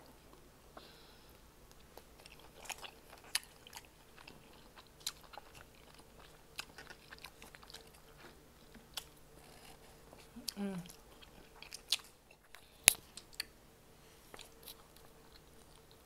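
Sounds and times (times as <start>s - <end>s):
chewing with wet mouth clicks: 1.7s - 9.6s, 10.2s - 13.6s.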